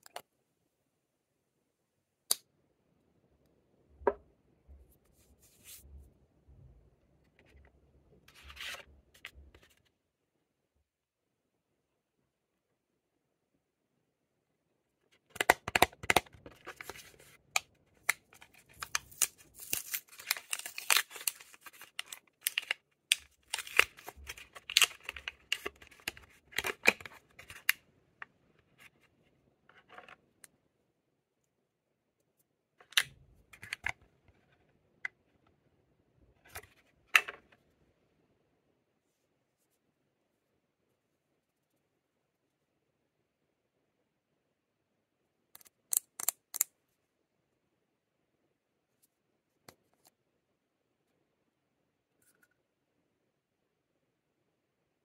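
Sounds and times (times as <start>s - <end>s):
packaging crinkling and tearing: 18.0s - 27.7s.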